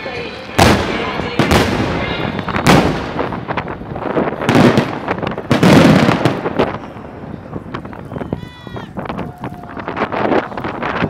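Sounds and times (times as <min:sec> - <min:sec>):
fireworks booming bangs: 0:00.0 - 0:08.0
fireworks crackling: 0:00.0 - 0:11.0.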